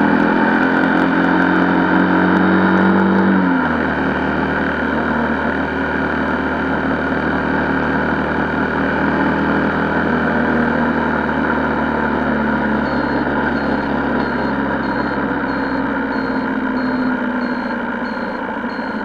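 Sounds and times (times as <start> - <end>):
motorcycle engine running: 0.0 - 19.0
short high beeps: 12.8 - 19.0.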